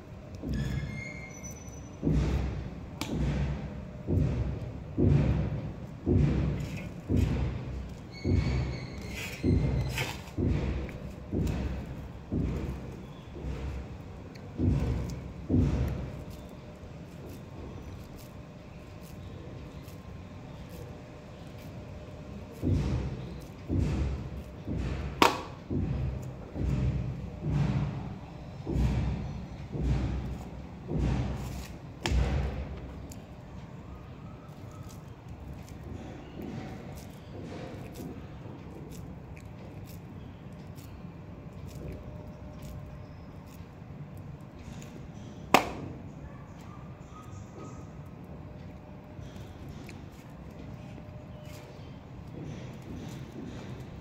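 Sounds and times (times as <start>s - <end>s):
dull low thumps: 2.0s - 16.3s.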